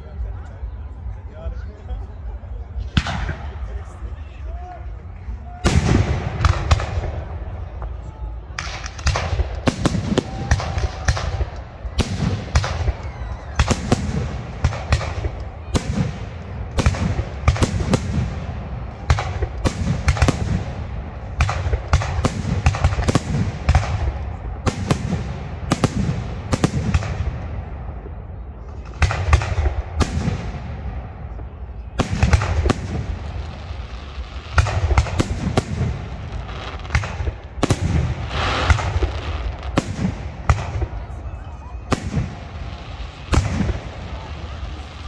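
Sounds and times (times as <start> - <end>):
firework bangs: 5.5 - 45.0.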